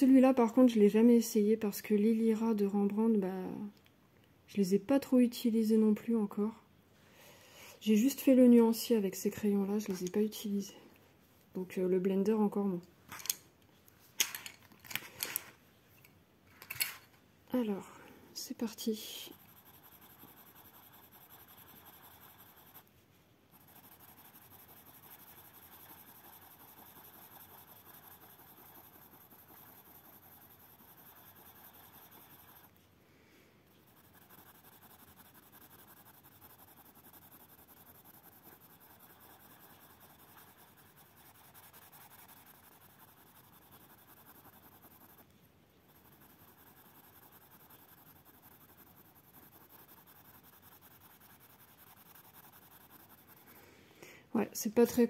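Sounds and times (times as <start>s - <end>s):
pencil scratching on paper: 7.9s - 10.6s, 18.4s - 32.9s, 33.8s - 53.6s.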